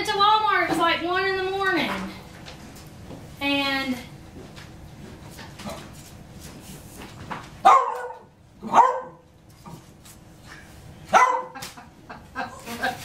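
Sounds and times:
dog barking: 7.6s - 9.2s, 11.1s - 11.6s.

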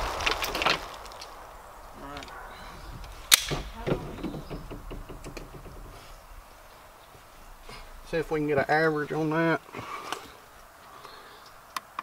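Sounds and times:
gunshot echo: 2.3s - 4.2s.

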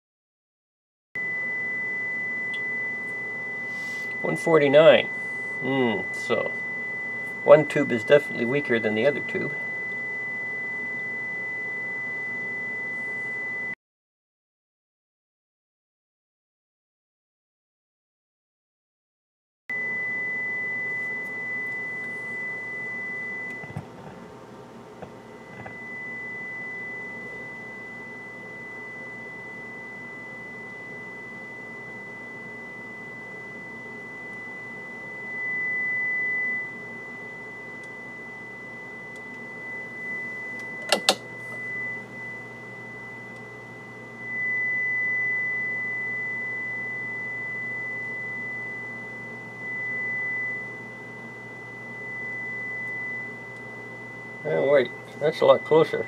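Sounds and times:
high-pitched sine test tone: 1.2s - 13.8s, 19.7s - 56.0s
low mains hum: 1.2s - 13.8s, 19.7s - 56.0s
test-lead clips clicking: 40.6s - 41.2s.

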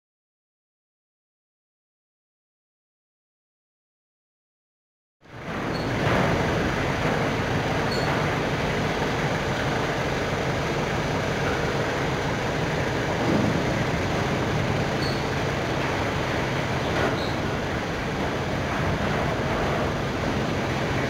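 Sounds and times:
conveyor belt running: 5.3s - 21.0s.

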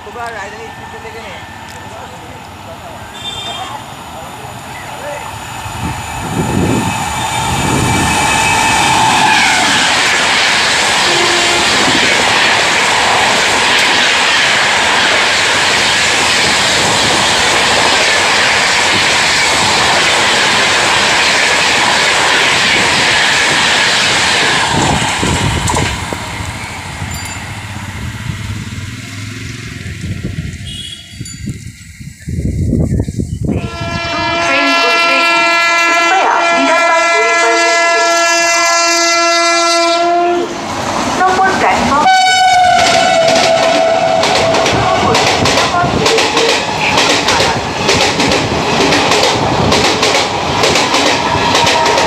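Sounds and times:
rush of wheels on rail: 0.0s - 52.0s
train rumble: 0.0s - 52.0s
train horn: 3.1s - 3.8s, 11.0s - 12.0s, 30.6s - 31.2s, 33.6s - 40.5s, 41.9s - 46.1s.

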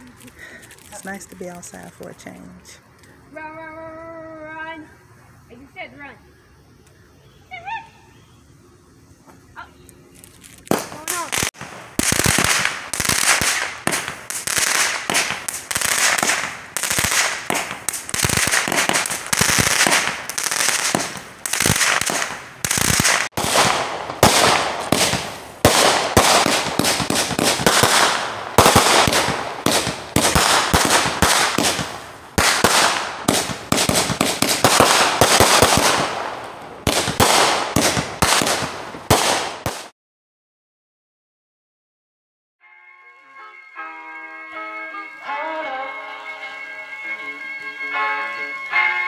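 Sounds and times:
fireworks crackling and banging: 0.0s - 7.1s, 9.0s - 39.9s.

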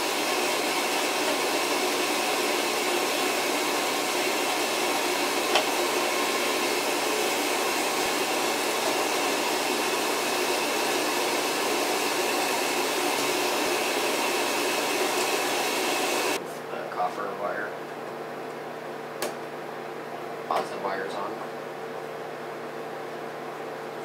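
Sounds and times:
heater rushing noise: 0.0s - 16.8s.

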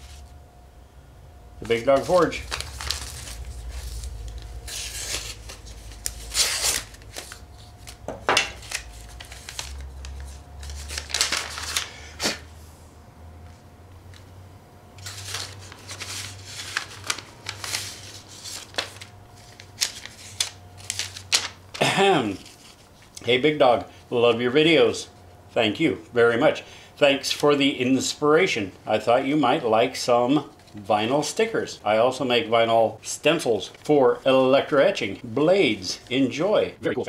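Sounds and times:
paper rustling and crinkling: 1.6s - 12.4s, 15.0s - 23.3s.

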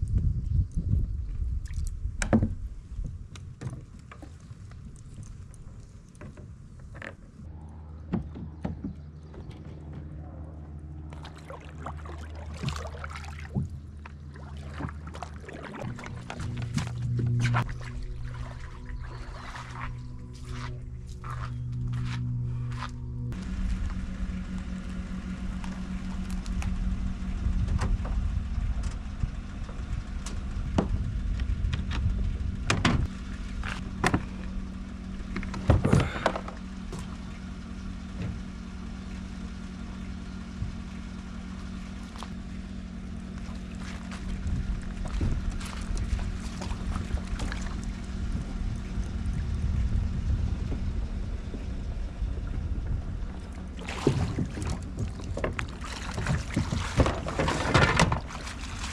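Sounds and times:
gear knocks and clunks: 2.1s - 10.4s, 14.8s - 18.2s, 25.5s - 38.6s, 43.3s - 49.0s, 50.2s - 58.9s
truck engine running: 2.7s - 58.9s.

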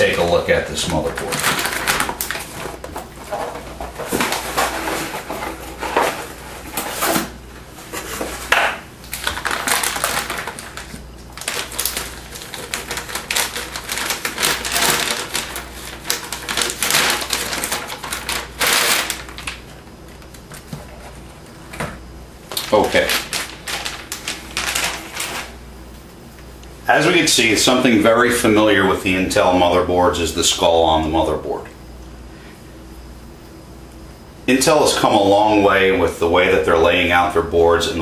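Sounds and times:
anti-static bag crinkling: 0.0s - 21.8s, 22.4s - 27.8s
cardboard box rustling: 1.1s - 8.5s.

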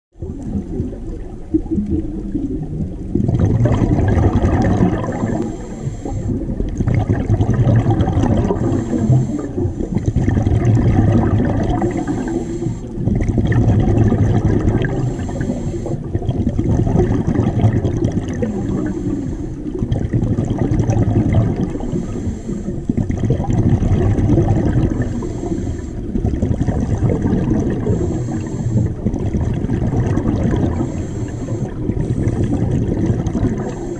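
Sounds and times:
exhaled bubbles rumbling: 0.1s - 33.9s
regulator inhale hiss: 5.2s - 6.6s, 8.5s - 10.1s, 11.8s - 13.1s, 15.0s - 16.2s, 18.5s - 19.8s, 21.8s - 23.0s, 24.9s - 26.2s, 27.8s - 29.1s, 30.7s - 32.6s, 33.6s - 33.9s.

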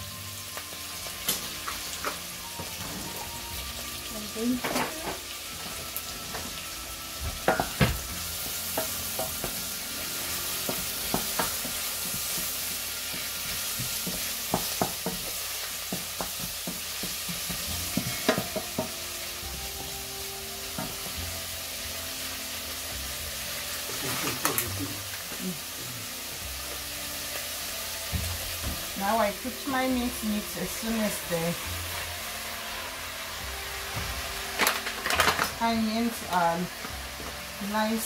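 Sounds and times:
onions sizzling in a pan: 0.0s - 38.0s
wooden spoon knocking on pan: 7.3s - 9.7s, 10.6s - 19.0s, 28.1s - 28.9s.

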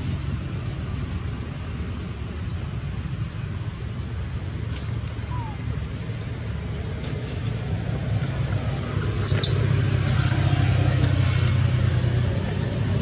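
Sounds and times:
high-pitched squeaks: 9.3s - 10.6s.

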